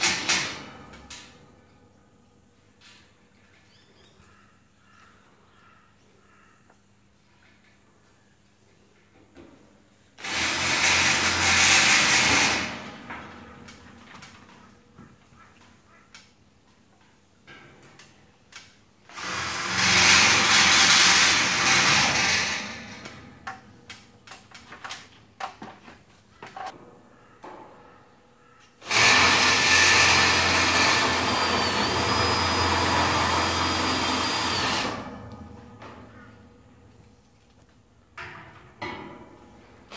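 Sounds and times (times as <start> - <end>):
cordless drill on steel: 10.2 - 12.7, 19.1 - 23.0, 28.8 - 35.4.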